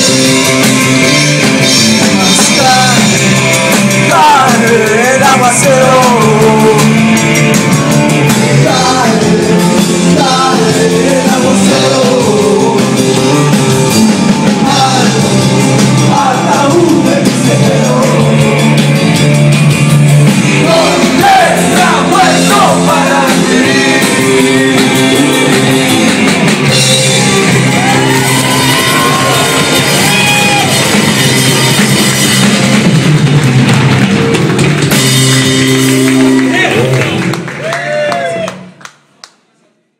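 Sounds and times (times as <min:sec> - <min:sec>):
drums with cymbals: 0:00.0 - 0:36.1
electric guitar: 0:00.0 - 0:38.7
person singing: 0:02.0 - 0:07.2, 0:08.2 - 0:19.3, 0:20.6 - 0:29.6.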